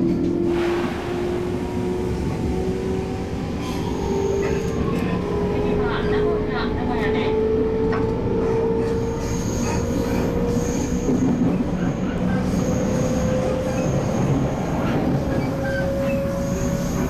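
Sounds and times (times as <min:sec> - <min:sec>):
train wheels rumbling: 0:00.0 - 0:17.0.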